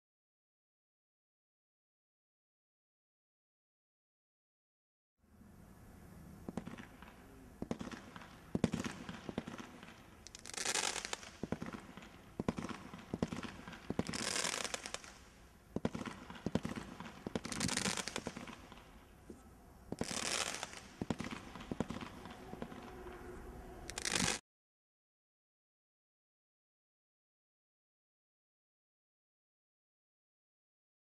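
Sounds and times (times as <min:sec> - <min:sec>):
firework crackling: 0:06.3 - 0:19.3, 0:19.9 - 0:24.4
roman candle shots: 0:06.4 - 0:24.4.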